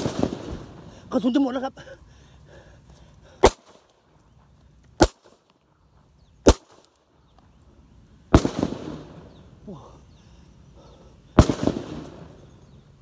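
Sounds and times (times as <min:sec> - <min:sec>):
blank pistol shots: 0:00.0 - 0:00.7, 0:05.0 - 0:05.4, 0:06.4 - 0:06.9, 0:08.3 - 0:09.3, 0:11.4 - 0:12.3.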